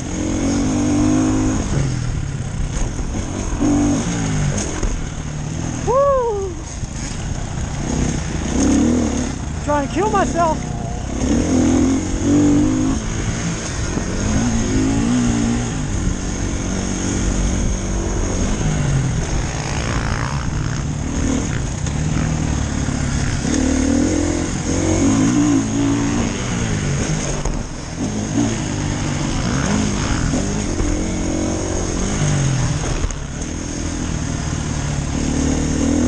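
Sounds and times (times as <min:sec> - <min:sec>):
dirt bike engine revving: 0:00.0 - 0:36.0.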